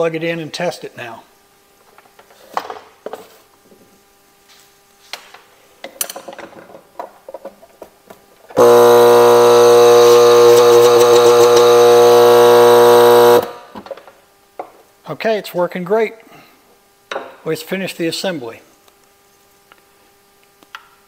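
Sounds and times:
air pump humming: 8.6 - 13.8.

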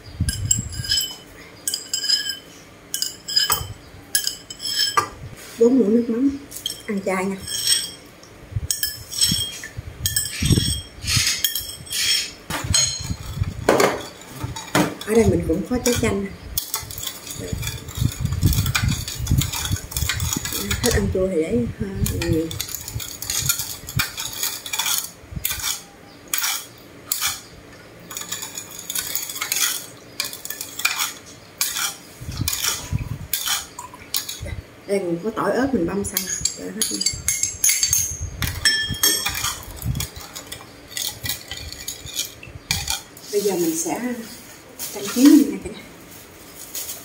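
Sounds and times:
metal spoon clinking on ceramic bowls: 0.3 - 5.1, 6.6 - 8.1, 8.7 - 21.0, 22.0 - 27.5, 28.1 - 34.4, 36.1 - 43.1.

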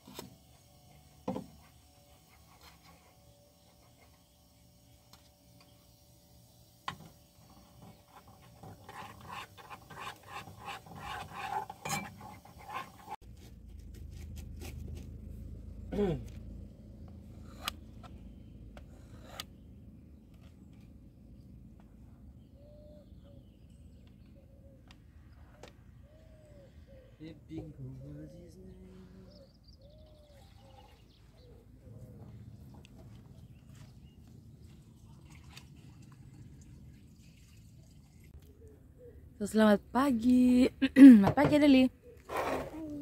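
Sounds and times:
spoon scraping in a saucepan: 7.8 - 13.2.

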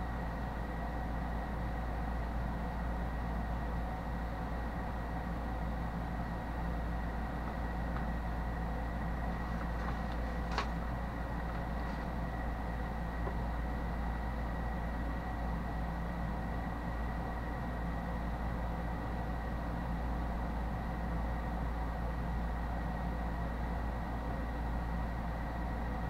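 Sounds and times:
electrical hum and hiss: 0.0 - 26.0.

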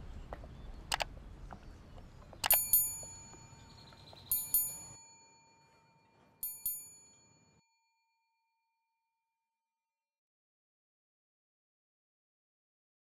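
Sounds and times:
bell-like ding-ding chime: 2.4 - 8.8.

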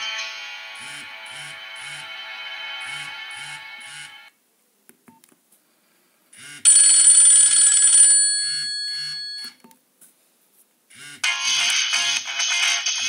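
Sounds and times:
bell-like ringtone: 6.7 - 9.6.

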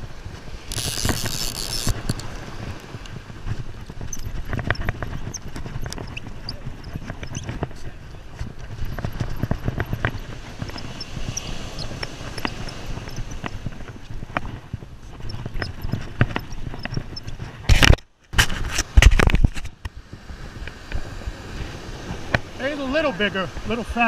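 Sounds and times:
surf rumble: 0.0 - 24.0
wind on microphone: 0.0 - 24.0
fishing reel clicks and knocks: 0.7 - 2.4
rustling bumps against microphone: 17.4 - 19.8.

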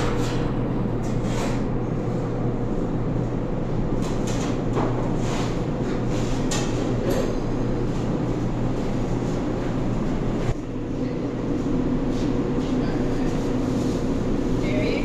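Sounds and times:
kitchen equipment droning hum: 0.0 - 15.0.

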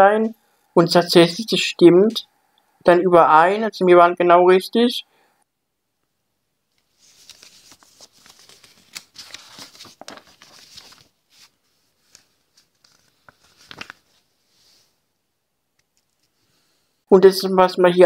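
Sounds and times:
cardboard and paper rustling: 6.9 - 14.3.

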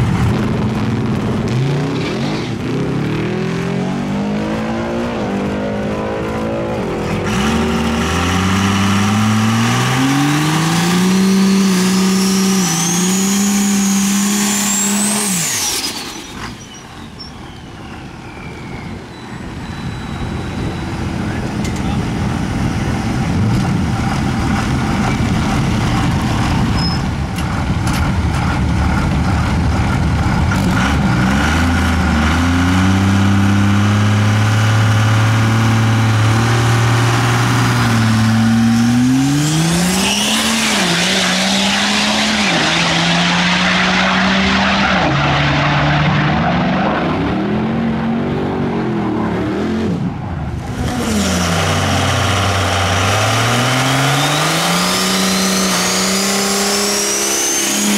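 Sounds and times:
diesel engine revving: 0.0 - 57.9
turbo whistle: 11.3 - 13.8, 14.6 - 21.1.

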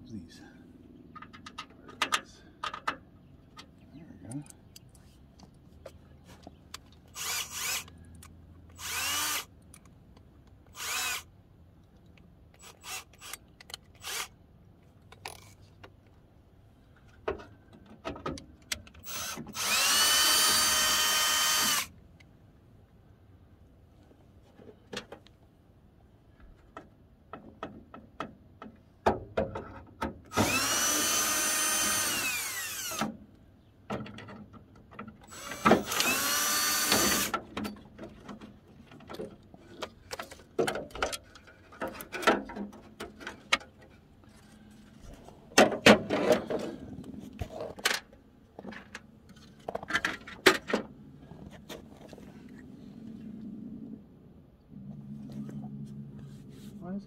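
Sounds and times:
cordless drill whining: 7.1 - 7.9, 8.7 - 9.5, 10.7 - 11.3, 12.6 - 13.4, 14.0 - 14.3, 19.0 - 21.9, 30.3 - 33.1, 35.3 - 37.3.

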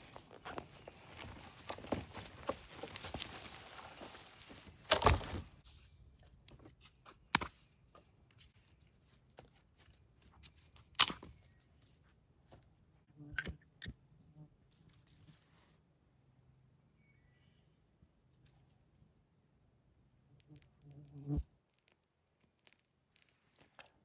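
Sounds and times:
twigs and leaves rustling: 0.0 - 5.8.

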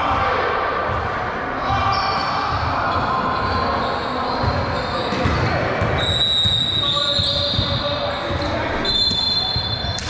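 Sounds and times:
basketball bouncing on gym floor: 4.4 - 8.5.

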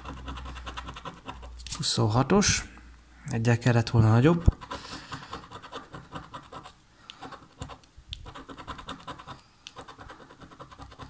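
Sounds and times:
coin scratching lottery ticket: 0.0 - 1.7, 4.5 - 11.0.

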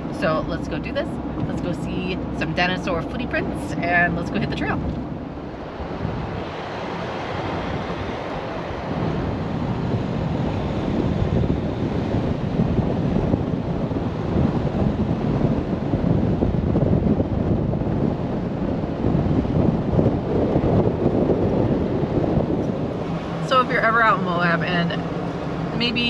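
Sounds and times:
vehicle road noise: 0.0 - 26.0
wind buffeting microphone: 0.0 - 26.0.

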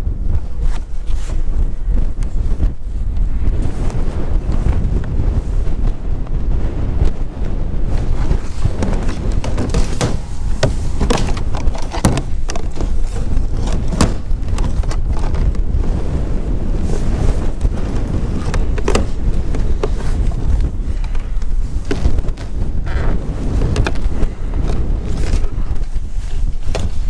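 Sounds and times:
wind buffeting microphone: 0.0 - 27.0
plastic pipe clicks and knocks: 8.8 - 15.6, 18.4 - 20.0, 23.7 - 25.5.

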